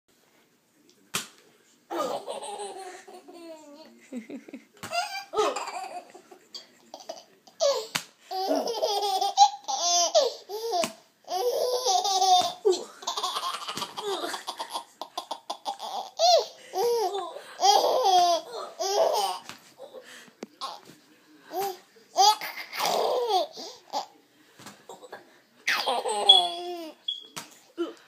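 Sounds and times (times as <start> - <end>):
baby laughing and squealing: 25.7 - 27.0.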